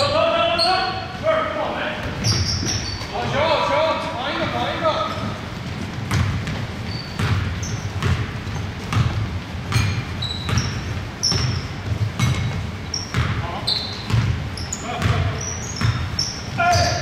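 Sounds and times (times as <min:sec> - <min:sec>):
sneaker squeaks: 0:00.0 - 0:01.2, 0:01.9 - 0:17.0
basketball dribbling on wooden floor: 0:05.2 - 0:17.0.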